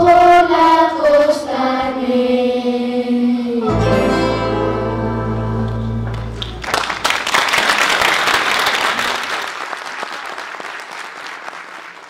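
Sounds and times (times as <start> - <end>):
music held chord: 3.6 - 6.6
audience applause: 6.1 - 12.0.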